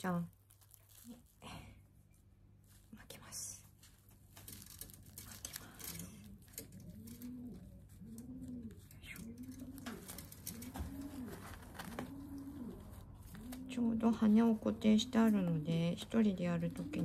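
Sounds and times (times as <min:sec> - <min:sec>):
bandage rustling and crinkling: 0:00.0 - 0:14.6
pigeon cooing: 0:05.1 - 0:17.0.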